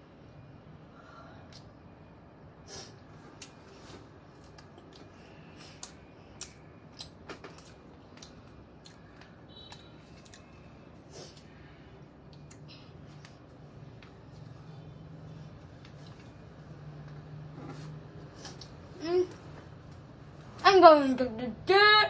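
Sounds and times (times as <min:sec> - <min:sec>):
child chewing food: 0:03.2 - 0:14.8, 0:15.5 - 0:19.4
wet mouth clicks and smacks: 0:12.3 - 0:13.4.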